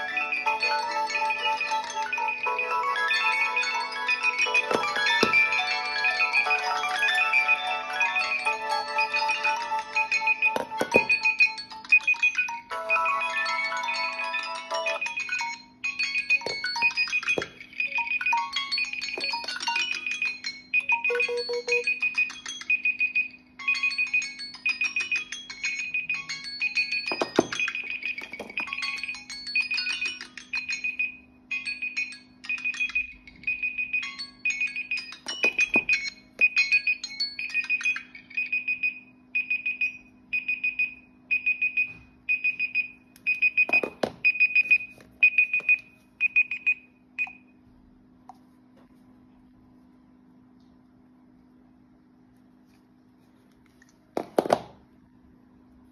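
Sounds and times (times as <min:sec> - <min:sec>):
phone timer alarms ringing: 0:00.0 - 0:47.6
high repeating beep: 0:20.8 - 0:22.2
knocks of phones handled: 0:54.2 - 0:54.8.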